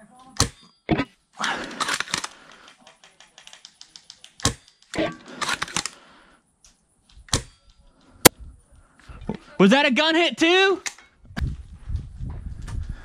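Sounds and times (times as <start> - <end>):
airsoft gun rapid clicks: 1.5 - 6.0
airsoft gun sharp cracks: 4.3 - 6.0.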